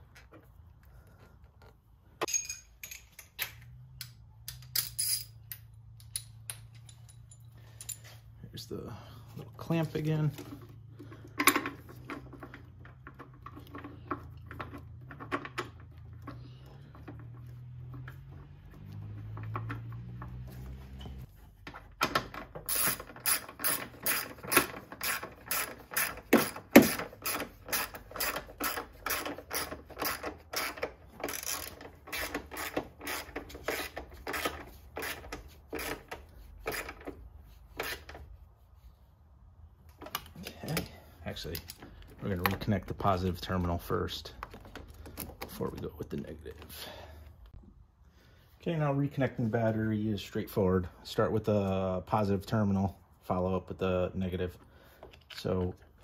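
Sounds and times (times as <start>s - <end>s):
tool handling clicks and clanks: 0.0s - 8.4s, 9.4s - 38.4s, 39.8s - 47.6s
ratchet wrench clicking: 22.7s - 35.2s.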